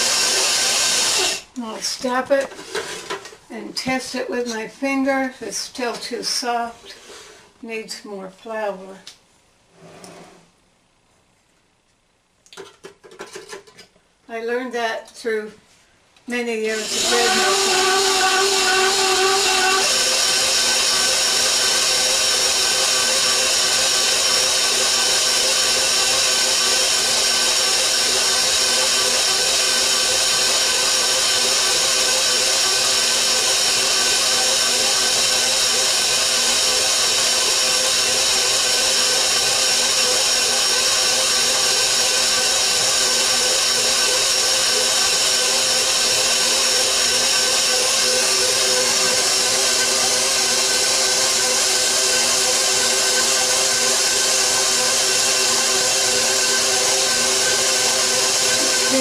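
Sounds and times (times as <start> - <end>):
stand mixer motor whine: 0.0 - 1.5, 16.7 - 59.0.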